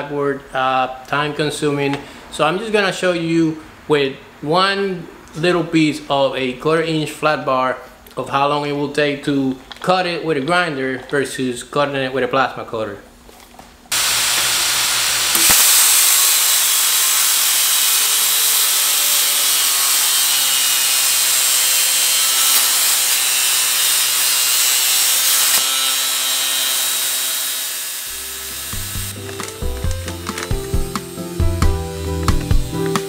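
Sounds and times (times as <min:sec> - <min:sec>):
harsh steel cutting noise: 0:13.9 - 0:33.0
music: 0:28.1 - 0:33.0.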